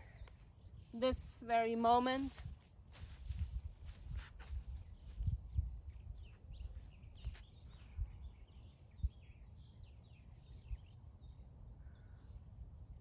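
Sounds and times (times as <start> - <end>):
songbirds chirping: 0.0 - 2.9, 4.5 - 13.0
wind on microphone: 2.2 - 9.8.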